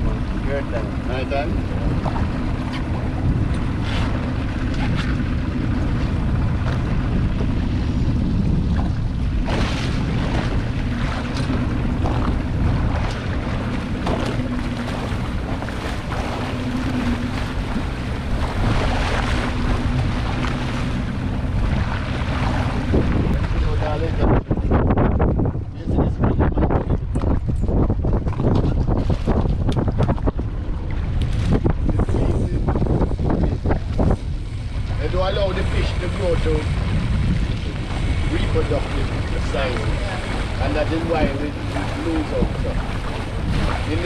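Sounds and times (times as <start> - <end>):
outboard motor running: 0.0 - 44.0
water rushing along hull: 0.0 - 44.0
wind buffeting microphone: 0.0 - 44.0.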